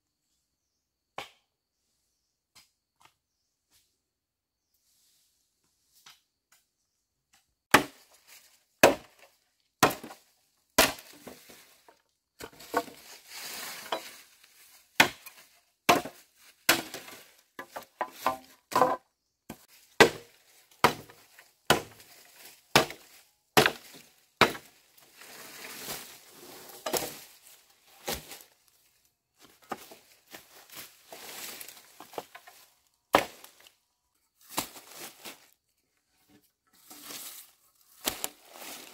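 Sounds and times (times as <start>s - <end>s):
dry leaf litter rustling: 12.6s - 15.6s, 23.9s - 28.7s, 30.0s - 32.8s
dry branches cracking: 37.9s - 38.9s.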